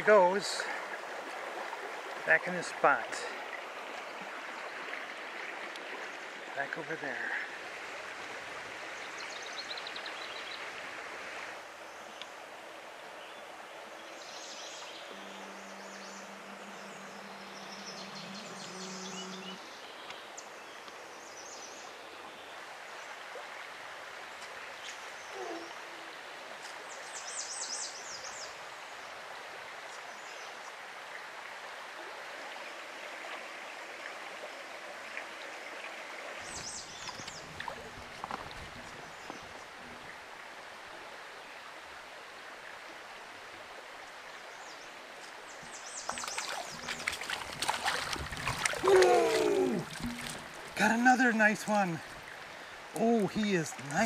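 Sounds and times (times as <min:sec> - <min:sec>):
stream running over rocks: 0:00.0 - 0:54.0
rustling and knocks near microphone: 0:49.9 - 0:50.8.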